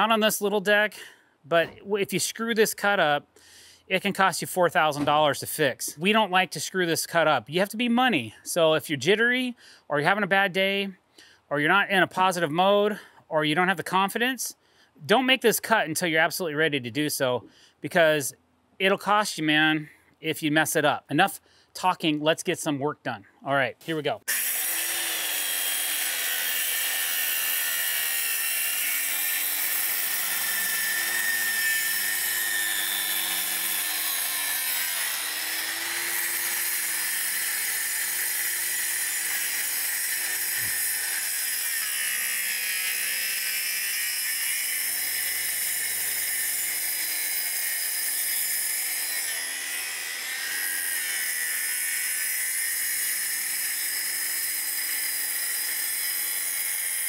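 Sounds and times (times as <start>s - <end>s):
circular saw cutting boards: 1.5s - 3.1s, 23.8s - 57.0s.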